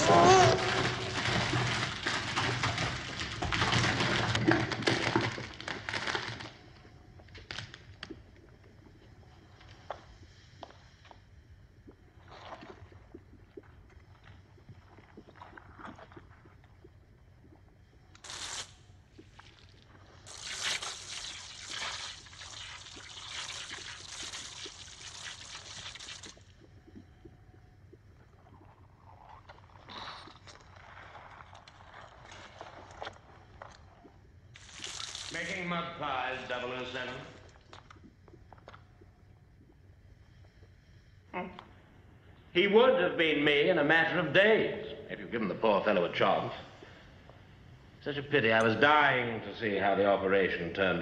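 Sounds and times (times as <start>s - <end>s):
mud bath churning and sloshing: 0.0s - 6.4s, 12.2s - 16.7s, 34.6s - 37.9s.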